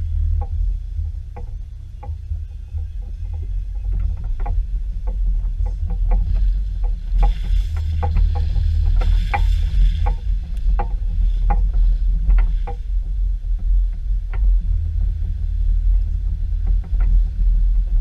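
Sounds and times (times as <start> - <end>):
light clicks and knocks: 0.0 - 12.9
car driving on dirt trail: 0.0 - 18.0.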